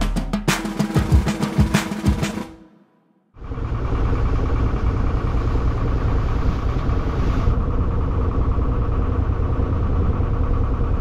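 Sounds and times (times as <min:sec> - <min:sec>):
boat engine droning: 0:03.4 - 0:11.0.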